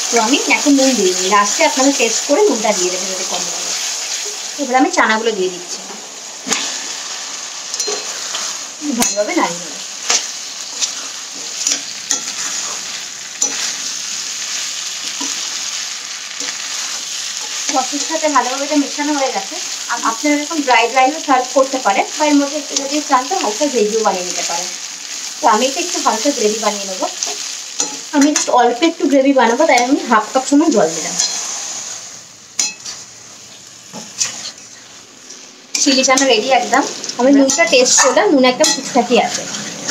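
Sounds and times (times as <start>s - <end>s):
chickpeas sizzling in a pan: 0.0s - 39.9s
metal spatula scraping pan: 31.1s - 32.0s, 38.6s - 39.9s.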